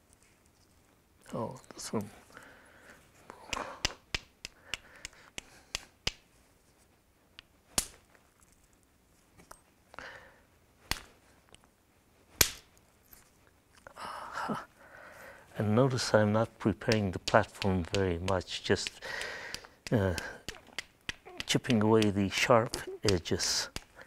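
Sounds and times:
light stone taps: 0:16.8 - 0:24.0
stone-on-stone cracks: 0:16.9 - 0:24.0.

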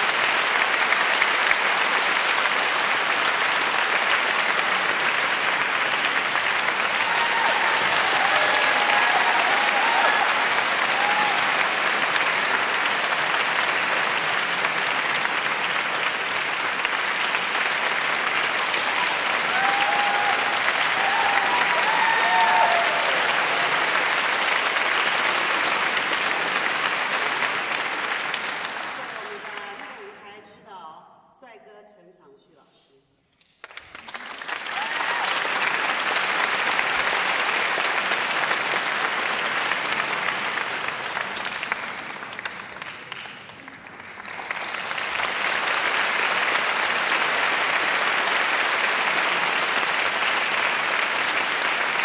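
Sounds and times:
audience applauding: 0:00.0 - 0:30.2, 0:33.5 - 0:52.0.

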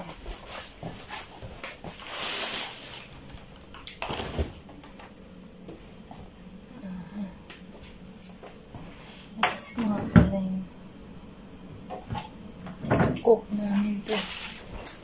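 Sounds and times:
rustling: 0:00.0 - 0:04.7
refrigerator door opening: 0:04.0 - 0:04.7.

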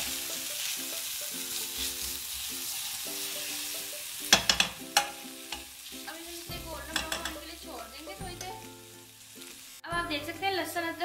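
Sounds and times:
paste sizzling in frying pan: 0:00.0 - 0:11.0
spoon clicking against pan: 0:04.3 - 0:06.2, 0:06.9 - 0:07.5.

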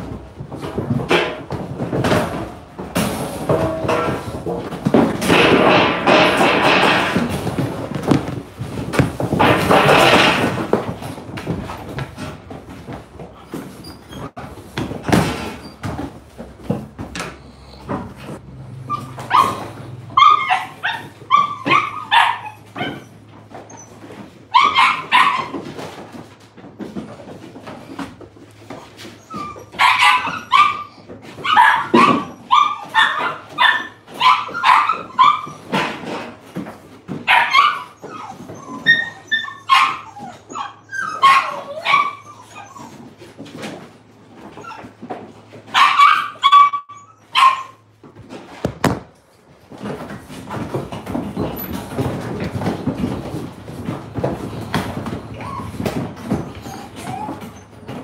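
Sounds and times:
puppies barking and yipping: 0:03.5 - 0:07.6, 0:17.6 - 0:48.4, 0:49.7 - 0:58.0.

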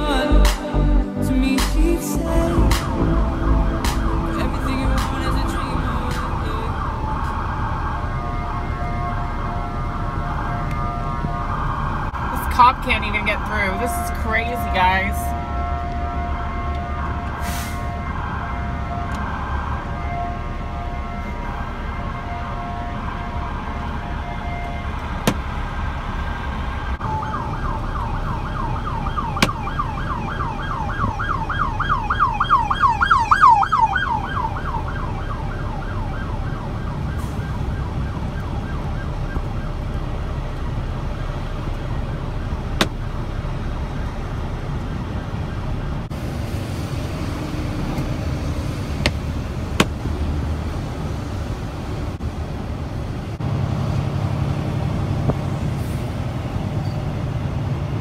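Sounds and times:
truck cab low rumble: 0:00.0 - 0:58.0
police siren yelping: 0:02.2 - 0:46.1.

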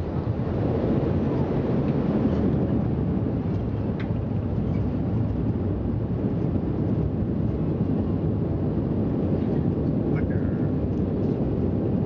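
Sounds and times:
turboprop engines rumbling: 0:00.0 - 0:12.0.

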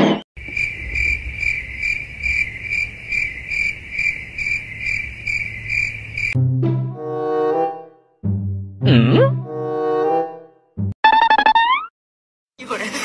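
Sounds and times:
cricket chirping: 0:00.4 - 0:06.4.

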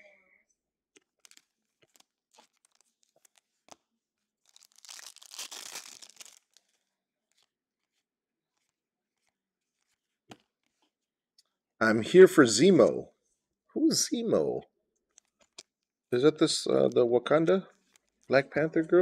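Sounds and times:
foil wrapper crinkling and tearing: 0:01.0 - 0:08.0
faint clicks of cards handled: 0:08.6 - 0:11.5.

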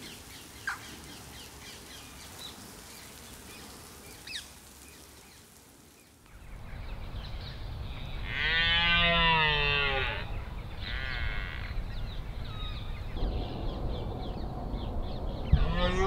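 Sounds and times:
birds calling: 0:00.0 - 0:16.0
rain hiss: 0:00.0 - 0:16.0
low rumbling noise: 0:06.4 - 0:16.0.

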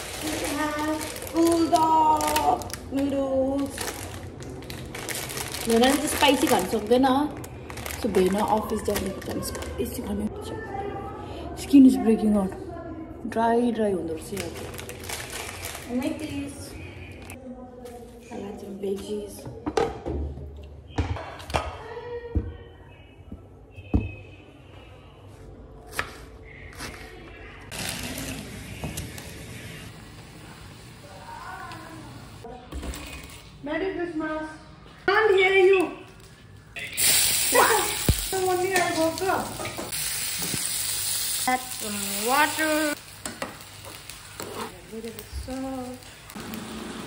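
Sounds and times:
vegetables sizzling in oil: 0:36.8 - 0:47.0.

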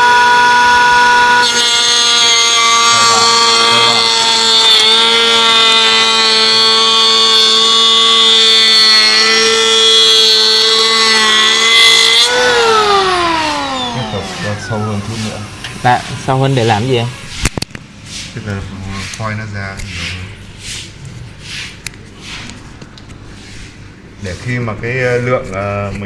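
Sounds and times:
planer blades shaving wood: 0:00.0 - 0:16.9
wood planer whining: 0:00.0 - 0:17.4.

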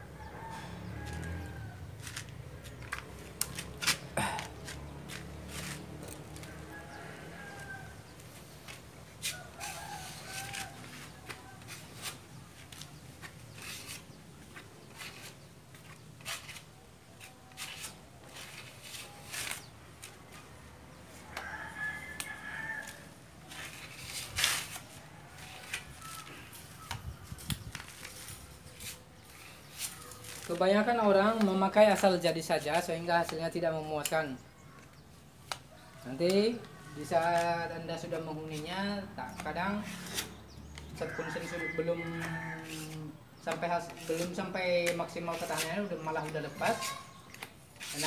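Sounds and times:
rooster crowing: 0:00.0 - 0:02.3, 0:06.1 - 0:08.3, 0:09.2 - 0:11.8, 0:20.4 - 0:23.7, 0:24.9 - 0:26.9, 0:41.0 - 0:43.1.

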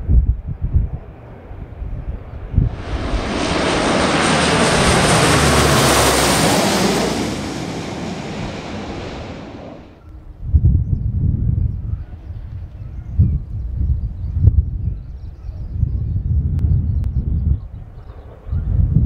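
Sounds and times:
wind rumble on microphone: 0:00.0 - 0:19.0
jet roar passing overhead: 0:02.6 - 0:10.0.

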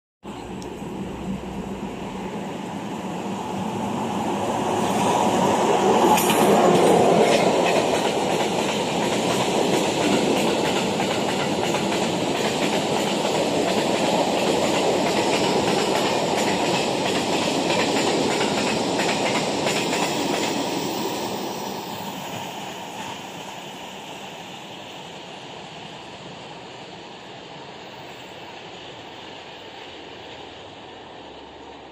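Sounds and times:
electric locomotive passing: 0:00.3 - 0:31.9
train wheels clattering over track: 0:04.6 - 0:23.6.

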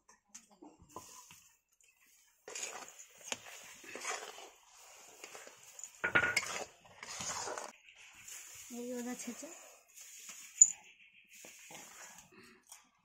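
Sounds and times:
filling bubbling and sizzling: 0:00.9 - 0:10.6, 0:11.3 - 0:12.3
metal spatula scraping a wok: 0:02.4 - 0:10.7.

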